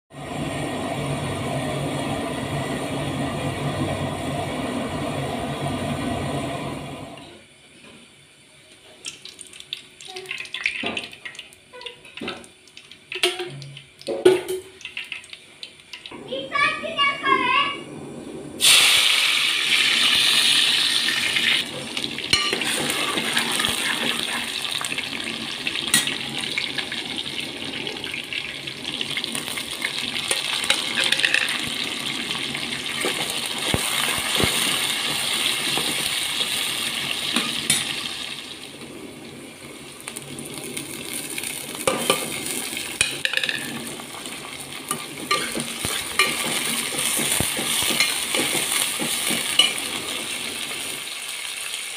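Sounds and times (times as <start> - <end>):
onions sizzling in hot oil: 18.6 - 51.9.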